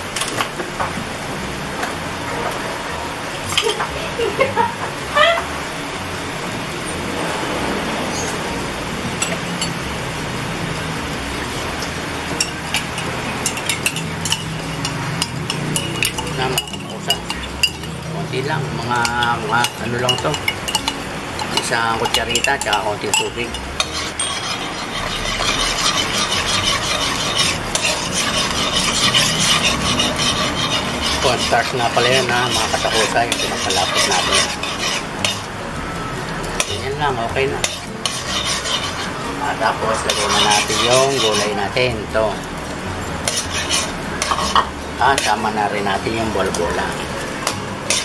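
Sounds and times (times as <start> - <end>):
sauce sizzling: 0.0 - 48.0
metal spoon scraping a wok: 12.3 - 18.0, 18.7 - 35.5, 36.5 - 42.0, 43.0 - 48.0.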